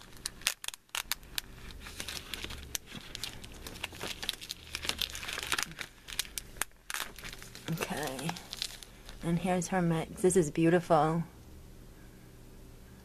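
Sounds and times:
plastic bags crinkling: 0:00.0 - 0:09.5.

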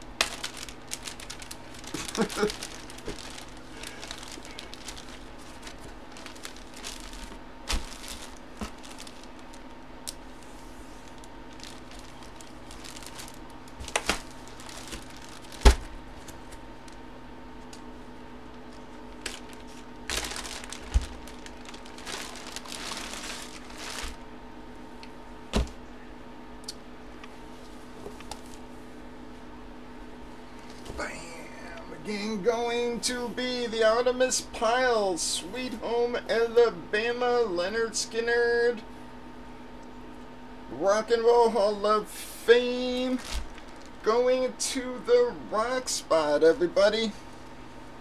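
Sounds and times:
plastic bags crinkling: 0:00.0 - 0:17.1, 0:18.5 - 0:24.3, 0:42.8 - 0:44.1
faint steady hum: 0:00.0 - 0:48.0.

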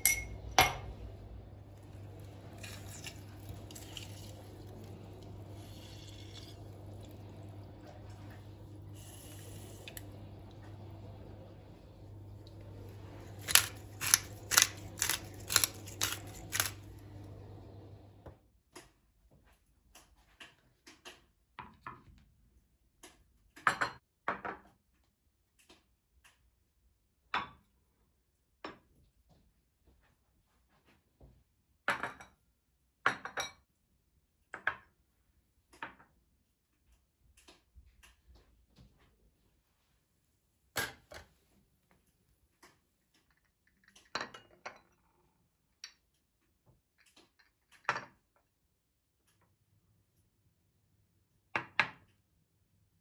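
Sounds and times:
plates clinking on marble: 0:00.0 - 0:00.9.

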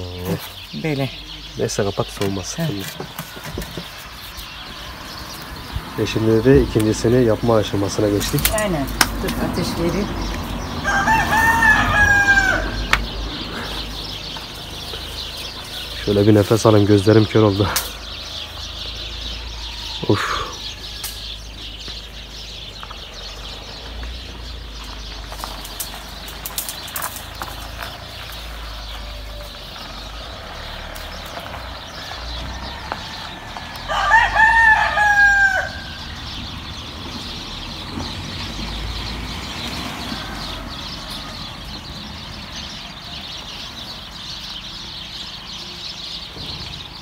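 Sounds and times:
rooster crowing: 0:10.8 - 0:13.0, 0:31.9 - 0:36.2
rain pattering: 0:24.8 - 0:28.7.

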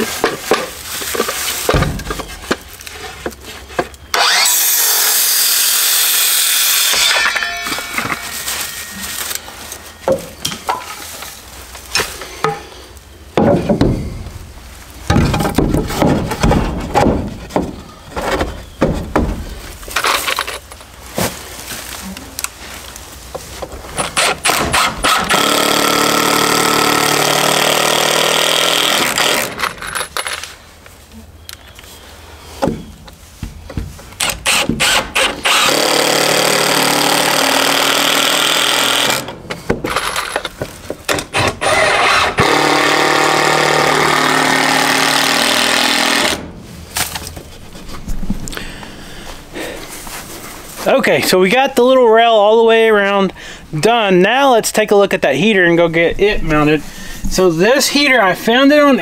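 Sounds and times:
boards knocking and clattering: 0:00.0 - 0:03.9, 0:13.4 - 0:14.4, 0:15.1 - 0:20.6
power drill running: 0:04.1 - 0:07.9, 0:34.4 - 0:39.3, 0:41.4 - 0:46.4.

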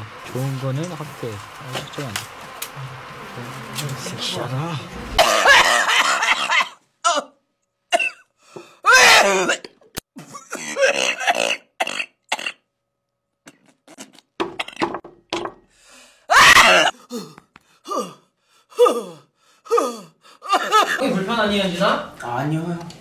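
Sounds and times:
woman gagging and coughing: 0:05.2 - 0:07.3, 0:07.9 - 0:08.2, 0:08.9 - 0:12.6.

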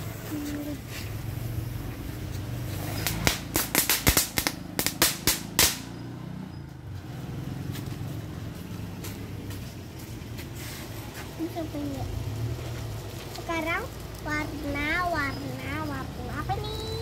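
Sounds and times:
firework pops and cracks: 0:02.8 - 0:06.0.

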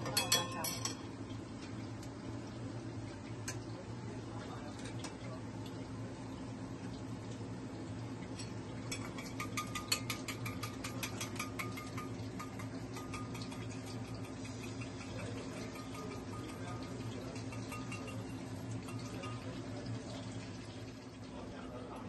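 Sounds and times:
chopsticks beating eggs in metal bowl: 0:00.0 - 0:01.0, 0:08.4 - 0:19.7.

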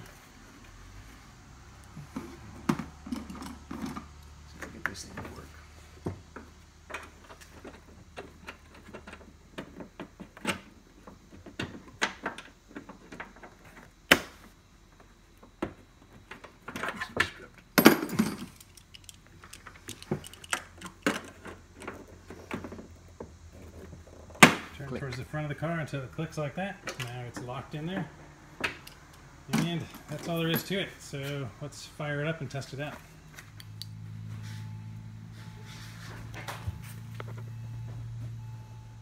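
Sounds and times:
headlight parts clicking and rattling: 0:17.8 - 0:22.9.

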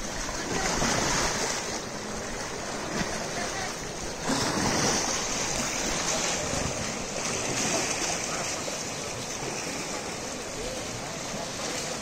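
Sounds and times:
flowing water rushing: 0:00.0 - 0:12.0
water splashing and churning: 0:00.0 - 0:12.0.

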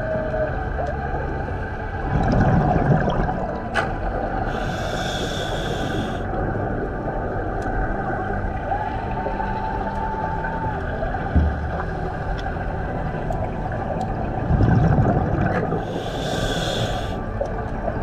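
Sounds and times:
muffled underwater rumble: 0:00.0 - 0:18.0
bubbling underwater: 0:01.9 - 0:04.2, 0:11.0 - 0:16.0
burst of hiss: 0:15.9 - 0:17.2.

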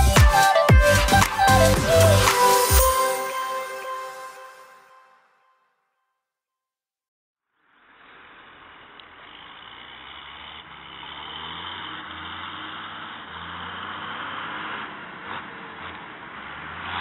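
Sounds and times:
tractor diesel engine under load: 0:07.9 - 0:17.0.

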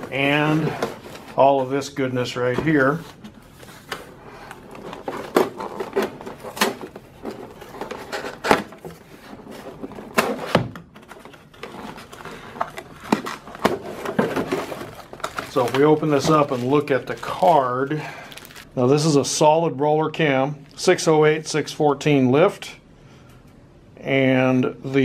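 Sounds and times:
boxes and plastic trays knocking: 0:04.8 - 0:09.0, 0:13.0 - 0:15.5.

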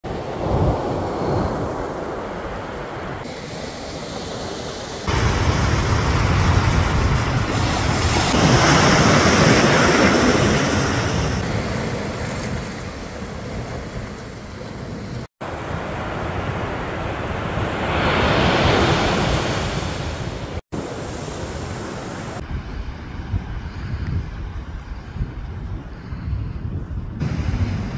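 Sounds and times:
ocean surf breaking: 0:00.0 - 0:23.4, 0:27.2 - 0:27.9
wind buffeting microphone: 0:04.0 - 0:15.8, 0:18.5 - 0:27.9.

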